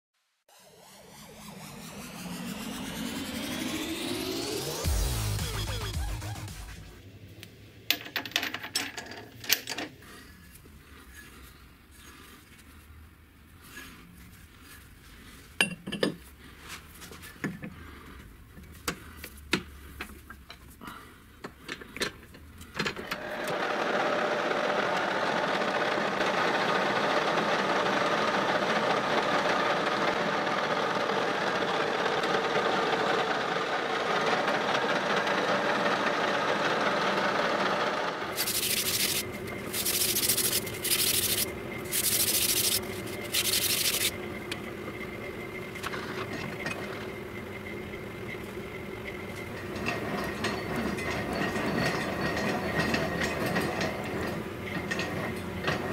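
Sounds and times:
high-pitched noise bursts: 0.5s - 7.0s, 38.4s - 44.1s
metal lathe running: 23.2s - 44.3s.

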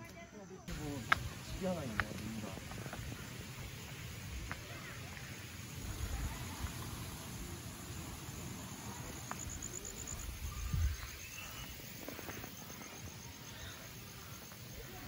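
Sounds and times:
insects trilling: 0.2s - 15.0s
low rumble of wind: 0.7s - 11.6s.

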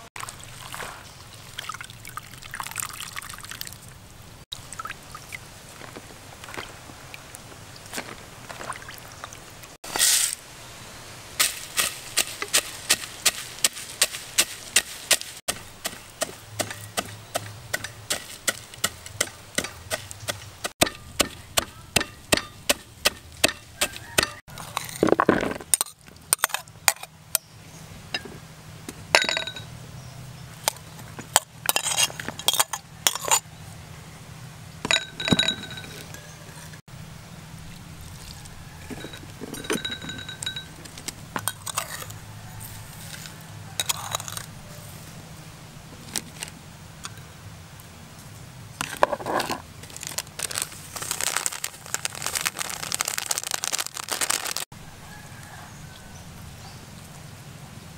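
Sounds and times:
pestle pounding in mortar: 12.2s - 24.4s.

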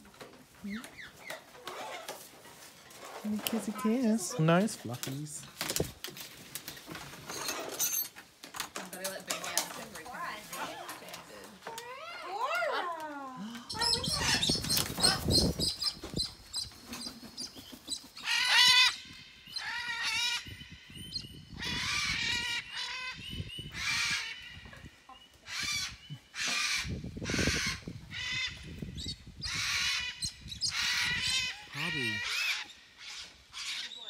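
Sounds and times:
parrots squawking: 13.7s - 15.5s, 18.2s - 19.0s, 29.5s - 34.0s.

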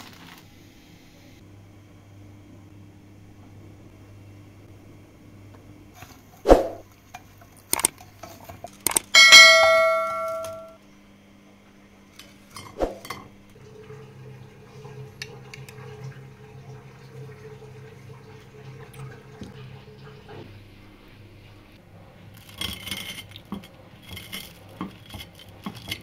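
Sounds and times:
dishware ringing clang: 9.2s - 10.8s
utensils knocking dishware: 9.2s - 10.8s.

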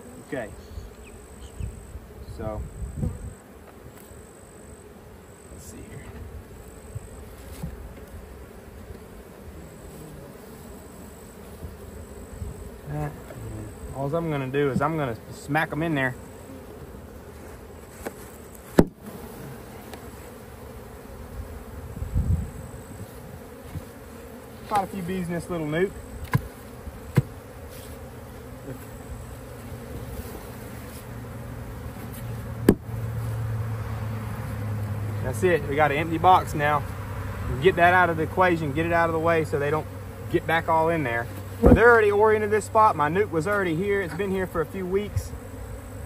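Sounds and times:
bees buzzing: 0.0s - 46.0s
knock on wooden box: 27.1s - 27.3s.

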